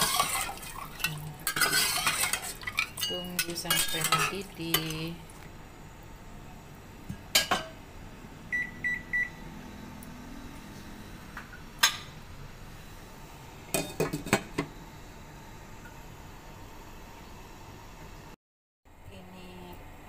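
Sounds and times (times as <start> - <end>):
cooktop touch control beeps: 8.5 - 9.5.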